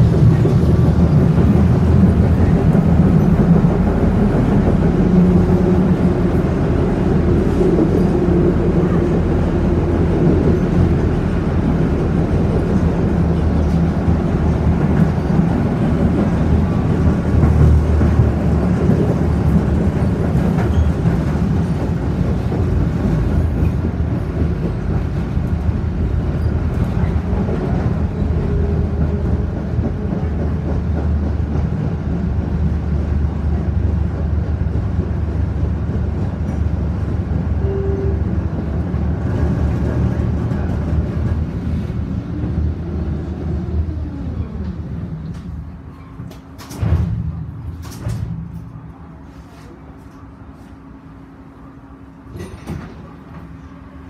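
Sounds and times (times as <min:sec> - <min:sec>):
tram wheels rumbling: 0:00.0 - 0:54.0
tram brake whine: 0:36.6 - 0:54.0.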